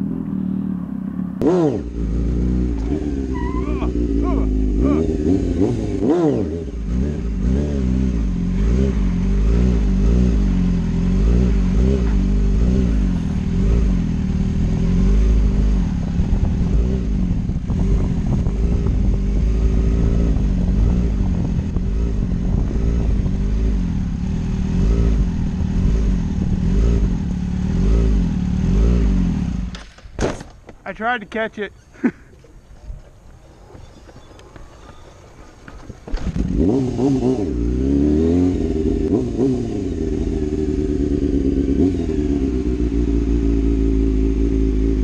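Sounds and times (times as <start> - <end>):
motorcycle engine revving: 0.0 - 29.8, 33.9 - 45.0
wind rumble on microphone: 11.5 - 28.2.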